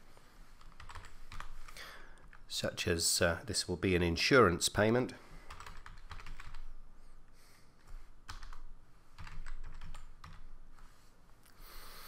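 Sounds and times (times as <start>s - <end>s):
typing on computer keyboard: 0.6s - 1.6s, 5.5s - 6.7s, 7.8s - 10.5s.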